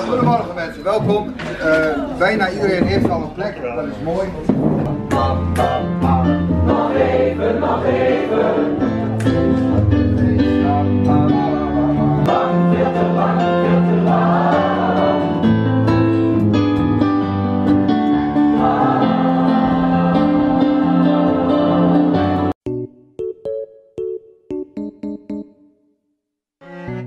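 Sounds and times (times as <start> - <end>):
group of people singing: 5.0 - 10.8, 11.4 - 15.6, 18.2 - 22.5
electric keyboard: 5.0 - 25.8.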